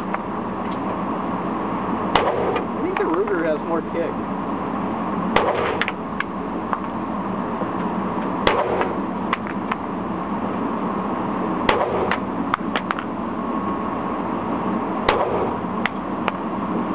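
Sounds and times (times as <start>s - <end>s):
handgun shots echoing: 2.2s - 2.7s, 5.4s - 6.0s, 8.4s - 9.0s, 11.7s - 12.2s, 15.1s - 15.6s.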